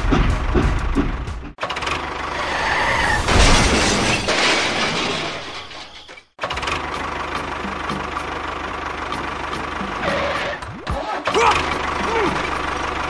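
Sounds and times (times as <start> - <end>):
crash sound effect: 2.3 - 6.3
engine running: 6.4 - 13.0.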